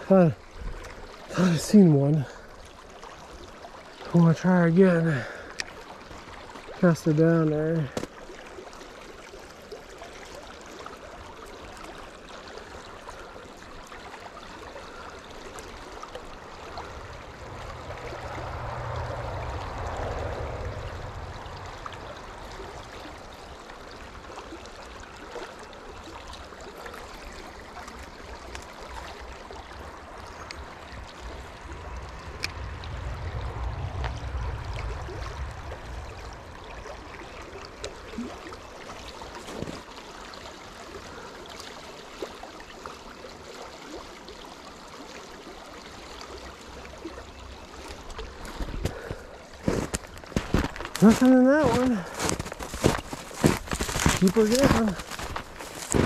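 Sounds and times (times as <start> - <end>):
creek trickling over stones: 0.0 - 56.0
low rumble: 16.5 - 23.3, 29.9 - 38.2.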